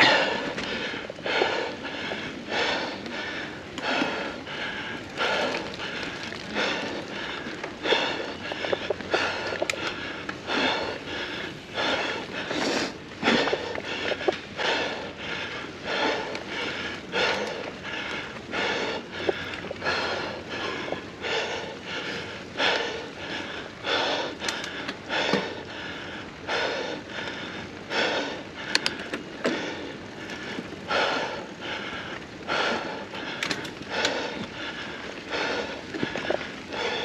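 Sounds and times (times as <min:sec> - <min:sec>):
person breathing hard: 0:00.0 - 0:37.0
bike clicks and knocks: 0:24.4 - 0:25.5, 0:33.4 - 0:34.1.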